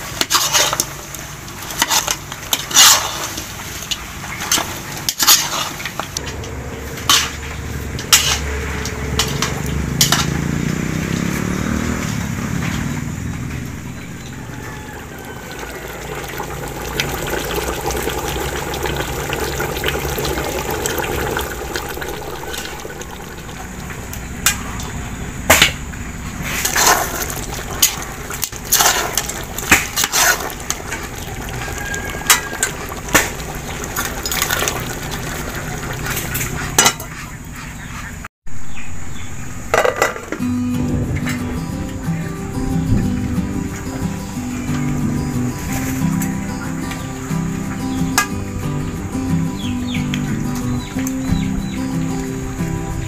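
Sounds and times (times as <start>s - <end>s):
steady watery noise: 13.3s - 37.6s
liquid pouring into a pot: 14.5s - 24.0s, 26.7s - 36.6s.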